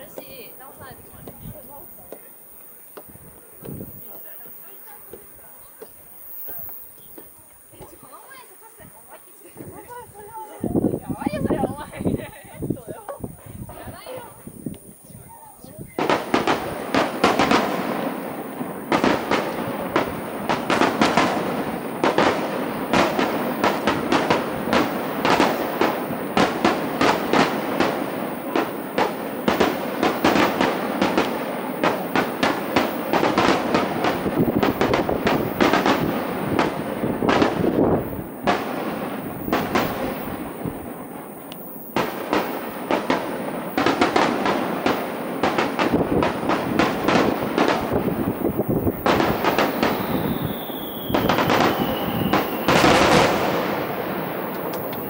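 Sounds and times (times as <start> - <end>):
firework shells bursting: 16.0 - 55.0.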